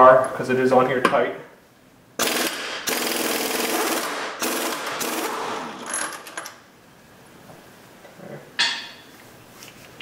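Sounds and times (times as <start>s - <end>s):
pneumatic impact wrench hammering: 2.2s - 6.4s.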